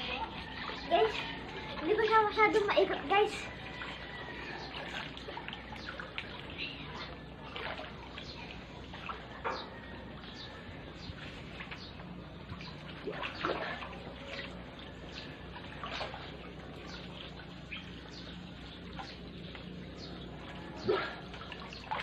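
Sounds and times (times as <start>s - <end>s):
water splashing in a pool: 0.0s - 22.0s.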